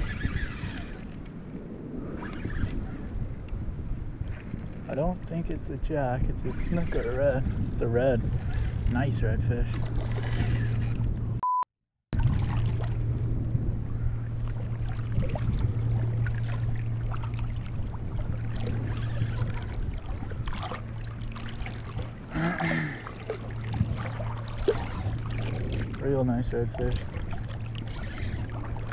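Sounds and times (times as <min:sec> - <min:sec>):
wind buffeting microphone: 0:00.0 - 0:11.4, 0:12.2 - 0:22.4, 0:23.0 - 0:28.9
water splashing: 0:06.4 - 0:11.0, 0:12.2 - 0:13.3, 0:14.2 - 0:28.9.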